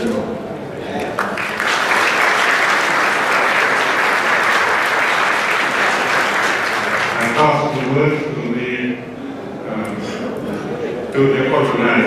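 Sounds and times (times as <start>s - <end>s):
audience applause: 1.2s - 8.0s
man speaking over a microphone: 7.1s - 12.0s.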